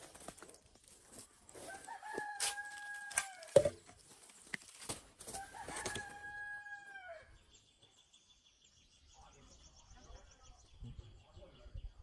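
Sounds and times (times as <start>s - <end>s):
rooster crowing: 1.6s - 3.6s, 5.3s - 7.3s.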